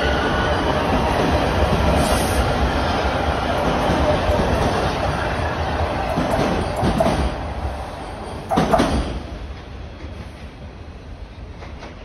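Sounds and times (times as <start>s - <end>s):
subway train wheels clattering: 0.0s - 12.0s
train rumble: 0.0s - 12.0s
train wheel squeal: 6.3s - 9.1s.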